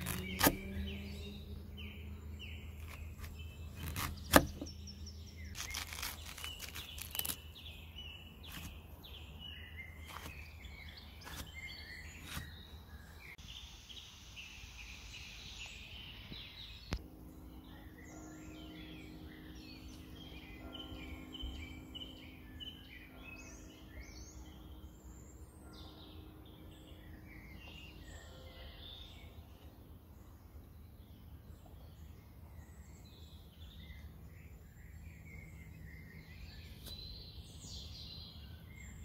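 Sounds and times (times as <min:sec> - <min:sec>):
knife cutting watermelon rind: 0:00.0 - 0:00.9, 0:02.8 - 0:04.7, 0:05.5 - 0:07.5, 0:08.4 - 0:08.8, 0:10.0 - 0:10.6, 0:11.2 - 0:12.6
songbirds chirping: 0:00.0 - 0:39.0.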